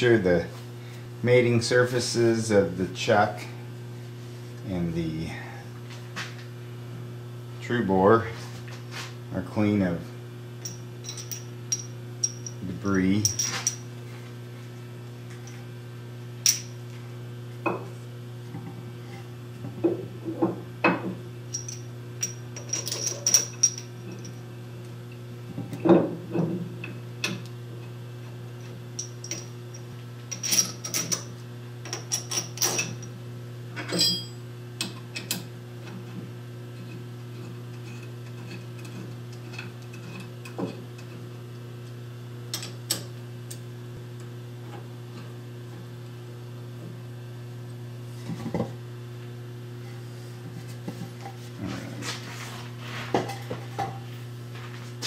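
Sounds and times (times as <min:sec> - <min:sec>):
steady low hum: 0:00.0 - 0:55.0
metallic clinks and knocks: 0:13.2 - 0:13.8.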